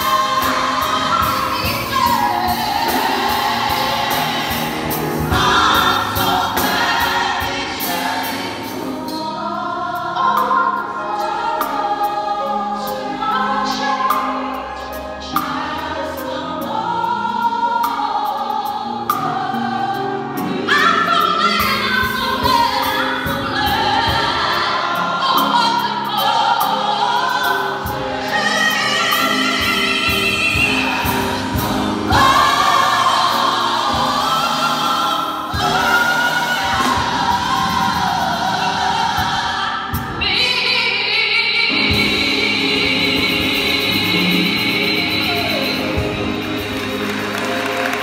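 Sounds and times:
drums: 0.0 - 9.4, 19.1 - 40.8, 41.7 - 48.0
gospel choir singing: 0.0 - 48.0
lead vocalist singing: 0.0 - 48.0
piano: 0.0 - 48.0.

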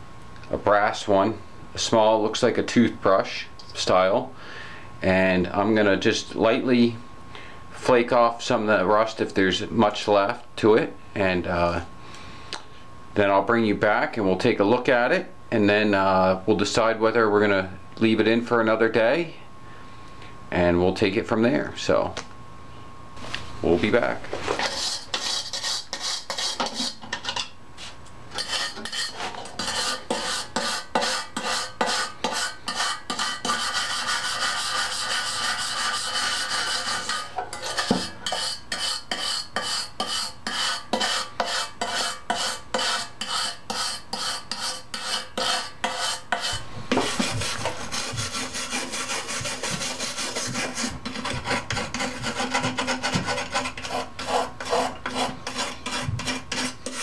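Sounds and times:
wire brush scrubbing metal: 24.6 - 27.4, 28.4 - 57.0.

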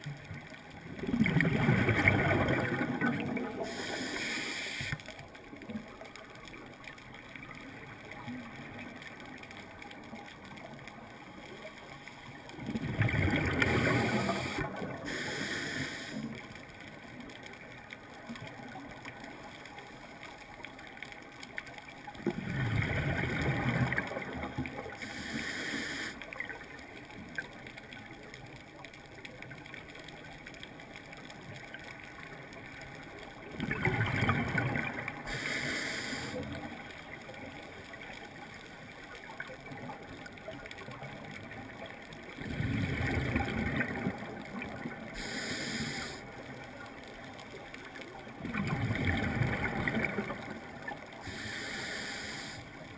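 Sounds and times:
bubbles of exhaled breath: 1.0 - 4.1, 12.6 - 16.1, 22.2 - 25.2, 33.6 - 35.4, 42.4 - 46.2, 48.4 - 52.0
faint sea hiss: 1.6 - 22.1, 22.7 - 33.5, 34.1 - 52.9
high regulator hiss: 3.7 - 5.0, 14.1 - 16.2, 25.0 - 26.2, 35.3 - 36.4, 45.2 - 46.2, 51.3 - 52.7.

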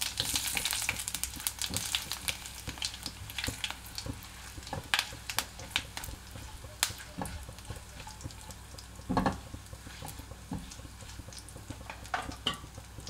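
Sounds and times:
spices crackling and popping: 0.0 - 13.0
spices sizzling in hot oil: 0.0 - 13.0
spatula scraping a pan: 9.1 - 11.9.

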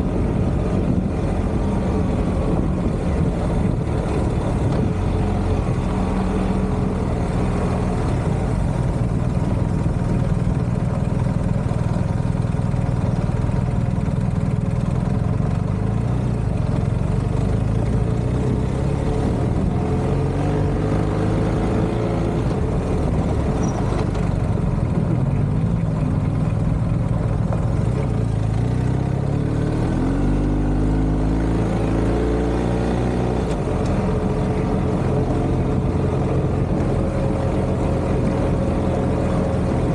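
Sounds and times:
motorcycle engine revving: 0.0 - 39.9
wind and road noise: 0.0 - 39.9.

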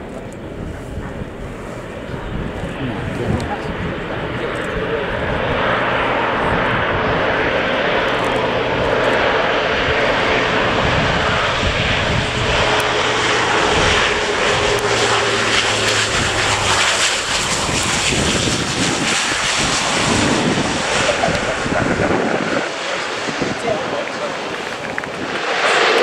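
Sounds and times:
low propeller hum: 0.0 - 26.0
turboprop engines running: 0.0 - 26.0.

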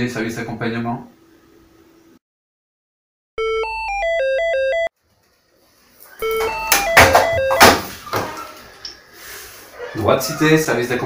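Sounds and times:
phone ringtone tune: 3.4 - 4.9, 6.2 - 7.8.

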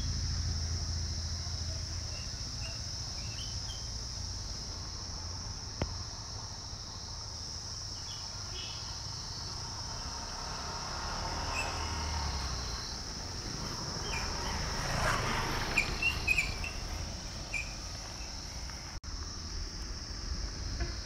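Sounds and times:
insects droning: 0.0 - 21.0
bird chirps: 15.7 - 18.4.

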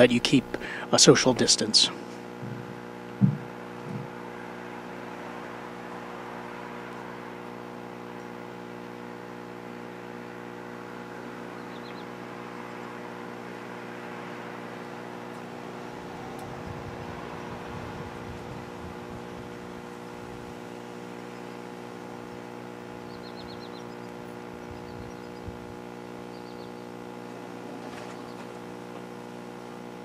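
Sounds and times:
even hiss: 0.0 - 4.2
steady hum: 0.0 - 30.0.

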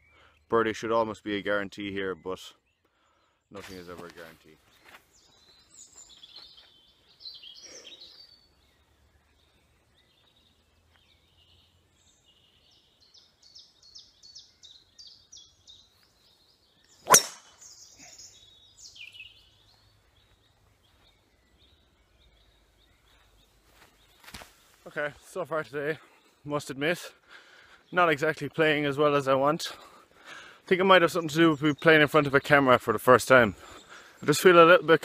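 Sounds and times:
small birds chirping: 0.0 - 35.0
golf club hitting ball: 17.0 - 17.7.

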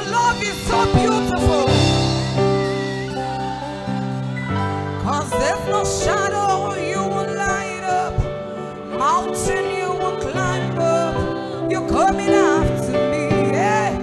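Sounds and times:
keyboard chords and bass: 0.0 - 9.0.

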